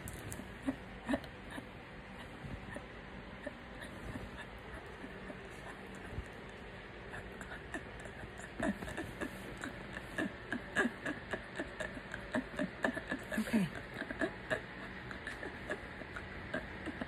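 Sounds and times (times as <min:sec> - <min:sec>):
woman gasping and grunting: 0:13.2 - 0:13.8.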